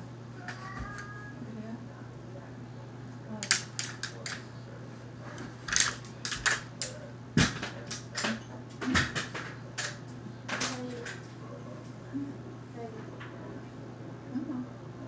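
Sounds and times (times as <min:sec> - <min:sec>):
metal objects clinking: 0:03.4 - 0:04.4.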